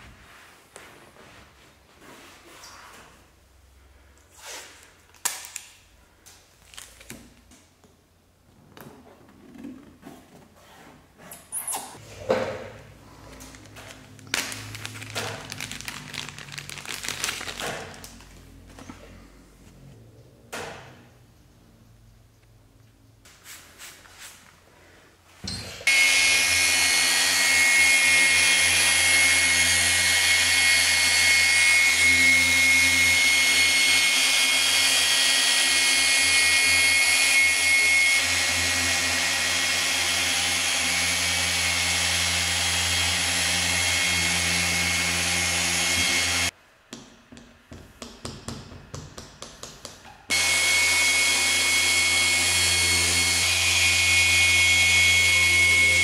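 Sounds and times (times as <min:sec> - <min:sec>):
rotary sander whining: 0:25.9 - 0:46.5, 0:50.3 - 0:56.0.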